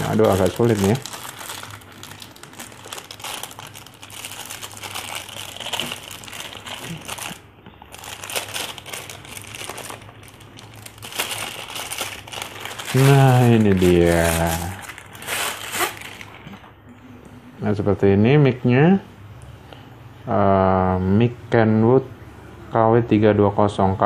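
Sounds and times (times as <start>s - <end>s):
plastic wrapping crinkling: 0.0s - 16.7s.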